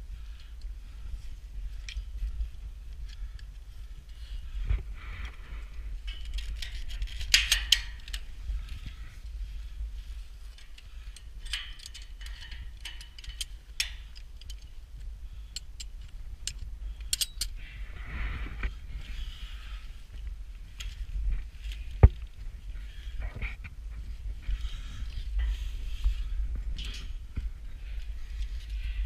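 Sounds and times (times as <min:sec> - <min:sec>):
low wind rumble on microphone: 0:00.0 - 0:29.0
metal gear clanking on steel tower: 0:06.1 - 0:08.2, 0:11.4 - 0:14.6, 0:17.1 - 0:17.5.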